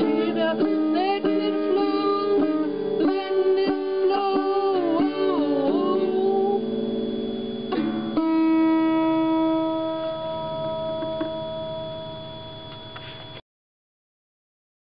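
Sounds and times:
acoustic guitar strums: 0.0s - 13.4s.

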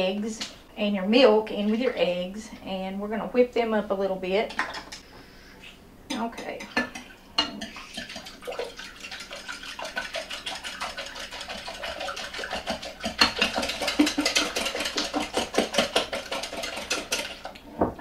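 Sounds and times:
whisk beating against glass: 6.2s - 17.6s
liquid splashing: 6.6s - 17.6s.

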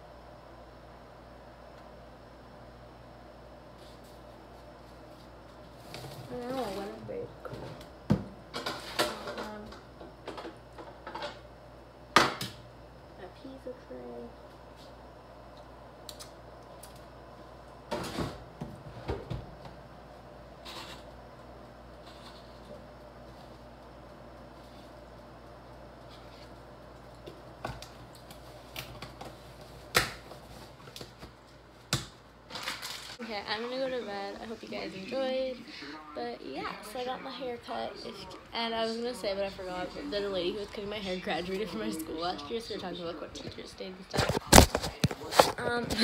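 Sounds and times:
low room hum: 0.0s - 46.0s
objects clattering on kitchen counter: 7.5s - 11.4s.

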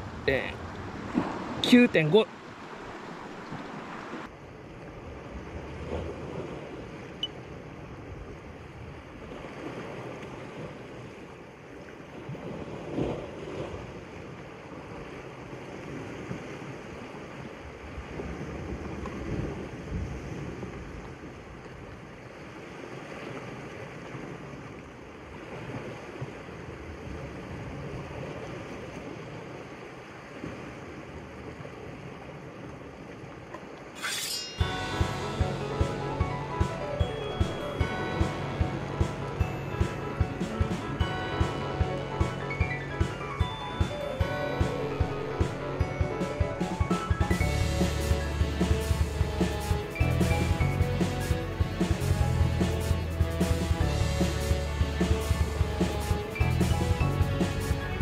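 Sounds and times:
surf washing on rocky shore: 0.0s - 51.8s
wind on microphone: 14.9s - 22.0s.

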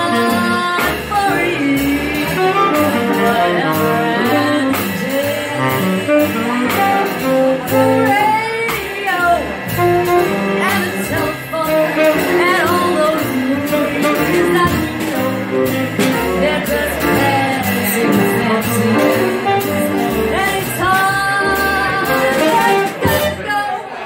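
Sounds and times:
woman singing into microphone: 0.0s - 9.5s, 10.3s - 23.9s
jazz combo playing: 0.0s - 24.0s.

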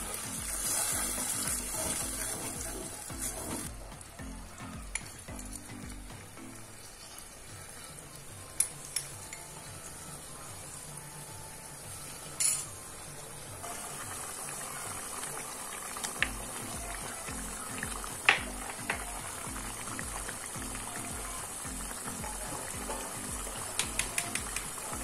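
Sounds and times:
curry bubbling and sizzling: 0.0s - 25.0s
kitchen utensils clinking: 12.4s - 12.7s.

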